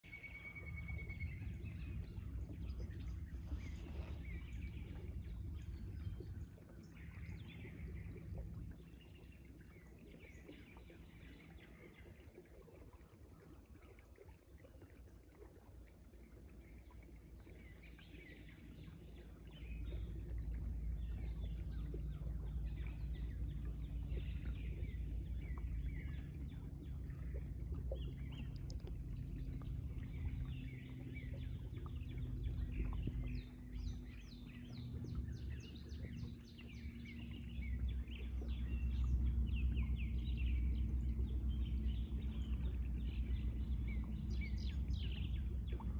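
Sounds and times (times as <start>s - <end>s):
steady low rumble: 0.0s - 14.3s, 14.9s - 45.9s
birds singing and calling: 17.5s - 45.9s.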